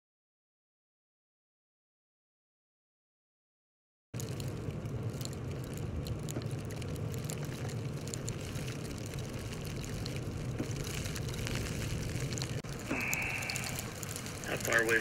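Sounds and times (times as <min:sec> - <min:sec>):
low rumble: 0:04.2 - 0:15.0
even hiss: 0:12.6 - 0:15.0.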